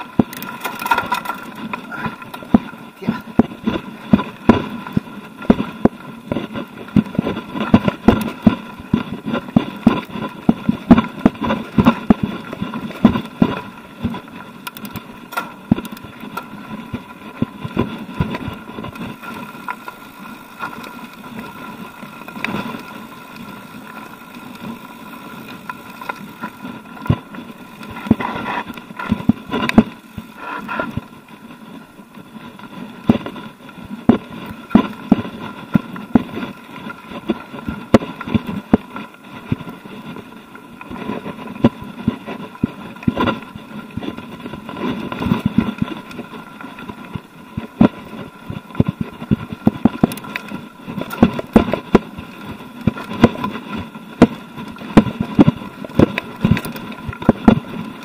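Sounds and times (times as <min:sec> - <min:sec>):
bike knocking over stones: 0:00.0 - 0:31.1, 0:40.8 - 0:58.0
tyres rumbling on gravel: 0:00.0 - 0:58.0.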